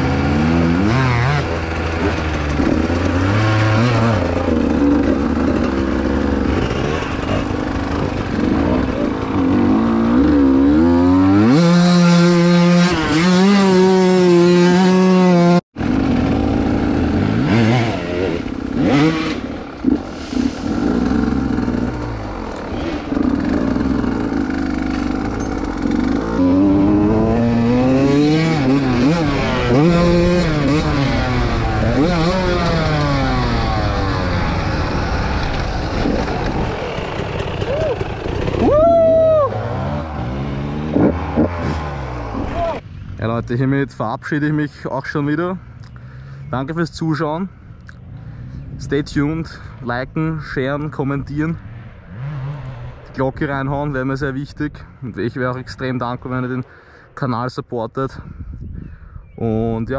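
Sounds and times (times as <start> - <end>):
dirt bike engine revving: 0.0 - 43.2, 51.6 - 53.7.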